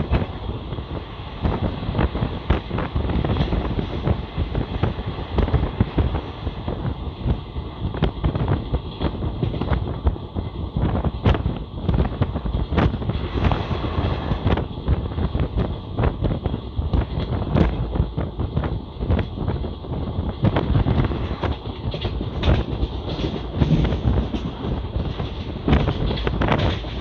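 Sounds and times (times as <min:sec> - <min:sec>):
train rumbling on track: 0:00.0 - 0:27.0
wheels clattering over rails: 0:20.5 - 0:27.0.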